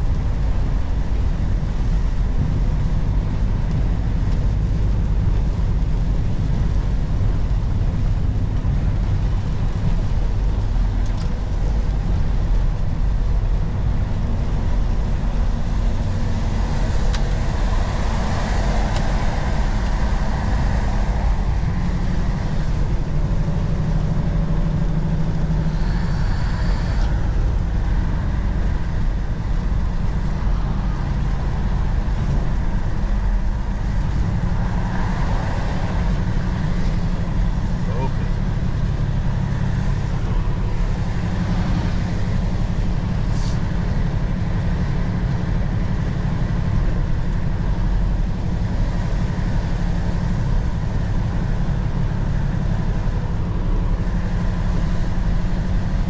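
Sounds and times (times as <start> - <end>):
truck diesel engine running: 0.0 - 34.9
road and tyre noise: 0.0 - 56.0.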